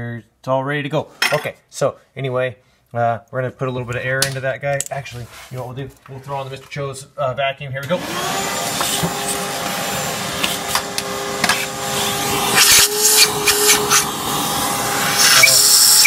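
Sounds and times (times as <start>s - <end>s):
shop vacuum running: 7.8s - 16.0s.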